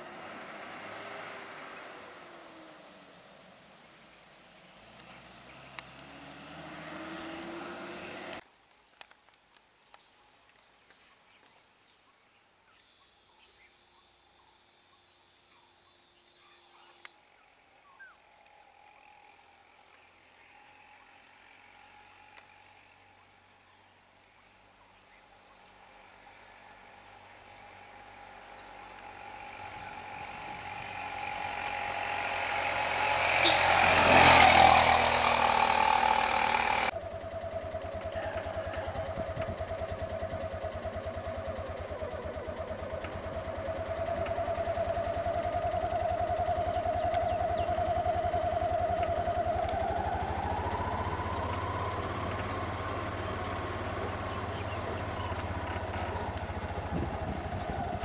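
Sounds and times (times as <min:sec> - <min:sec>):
truck diesel engine passing: 0:00.0 - 0:03.4, 0:04.7 - 0:08.4, 0:25.9 - 0:58.0
motorcycle engine idling: 0:25.4 - 0:58.0.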